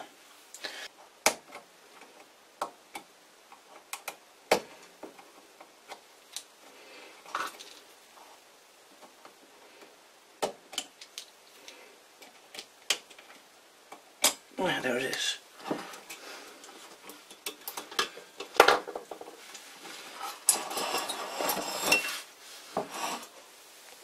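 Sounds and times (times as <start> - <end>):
tool scraping: 19.8 - 23.4.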